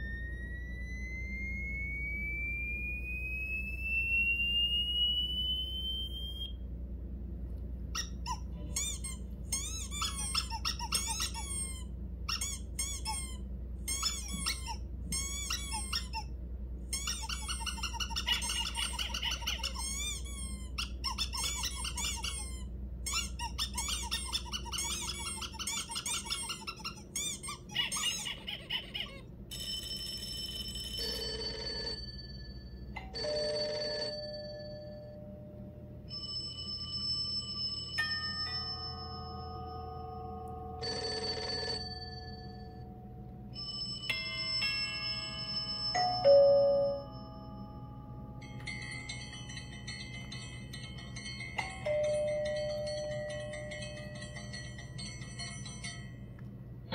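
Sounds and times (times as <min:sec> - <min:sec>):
squeaky toy squeaks: 0:07.9 - 0:30.0
telephone ringtone beeps: 0:29.5 - 0:35.3, 0:36.1 - 0:47.7
ringing bell: 0:29.5 - 0:56.5.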